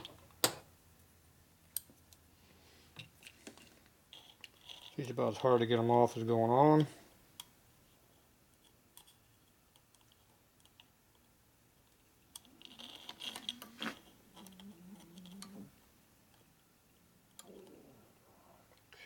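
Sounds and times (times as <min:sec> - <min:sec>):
metal clip clicking and scraping: 0:12.3 - 0:15.6.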